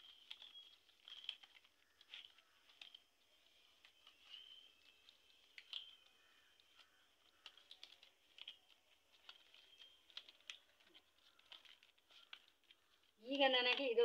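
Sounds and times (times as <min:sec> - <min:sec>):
dry leaves clicking and crackling: 0:00.0 - 0:14.0.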